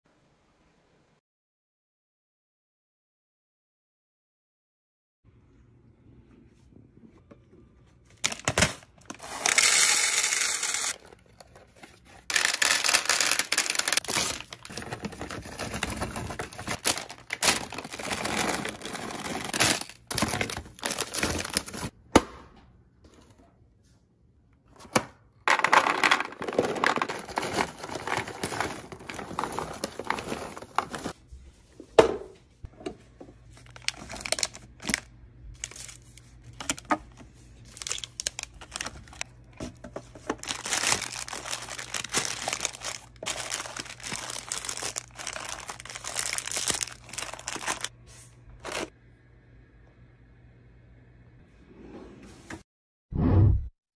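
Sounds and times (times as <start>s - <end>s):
candy pouring into plastic bins: 8.2s - 11.0s, 12.2s - 21.9s, 25.5s - 31.2s, 33.6s - 36.9s, 37.6s - 39.2s, 40.3s - 47.9s
plastic wrappers crinkling: 8.2s - 21.9s, 25.5s - 31.2s, 33.5s - 47.9s.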